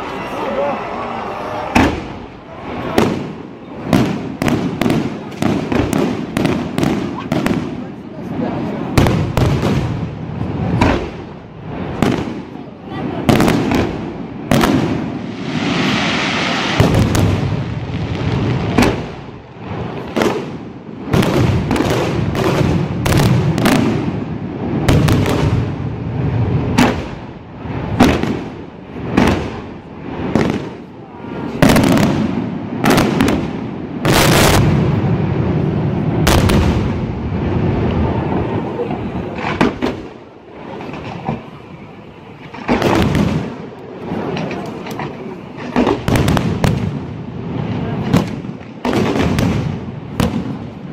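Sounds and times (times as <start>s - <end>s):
fireworks bangs: 0.0s - 50.9s
fireworks hiss: 13.1s - 20.6s.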